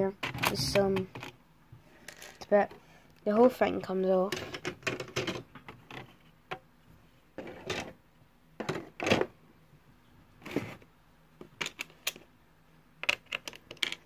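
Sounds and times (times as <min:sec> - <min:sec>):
plastic bricks clicking and clattering: 0:04.3 - 0:06.1, 0:11.4 - 0:12.2, 0:13.0 - 0:14.0.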